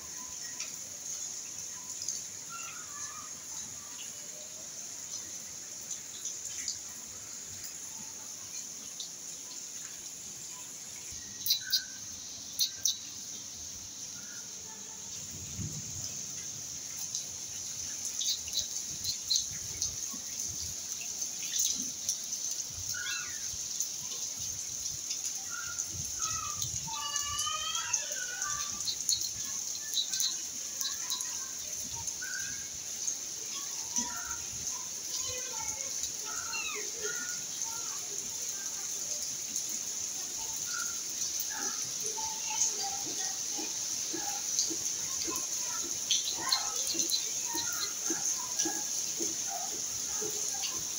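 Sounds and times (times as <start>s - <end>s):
sharp drips: 0.0s - 50.9s
steady rain hiss: 0.0s - 50.9s
short high chirping calls: 11.3s - 13.0s.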